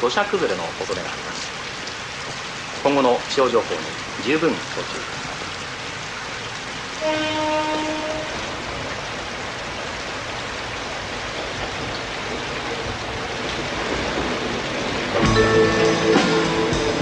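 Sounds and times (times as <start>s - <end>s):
steady rain: 0.0s - 17.0s
train horn blast: 7.0s - 8.7s
approaching train: 7.0s - 17.0s.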